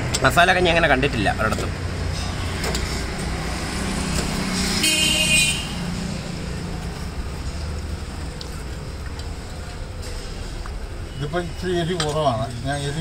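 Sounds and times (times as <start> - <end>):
road traffic: 0.0 - 13.0
car horn toot: 4.7 - 5.9.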